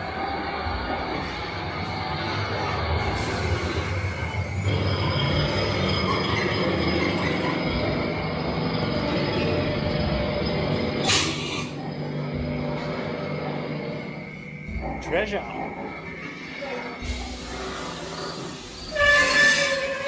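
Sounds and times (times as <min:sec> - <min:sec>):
mechanical rumble and rattle: 0:00.0 - 0:20.0
loud air hiss: 0:03.0 - 0:04.8, 0:11.0 - 0:11.8, 0:17.0 - 0:20.0.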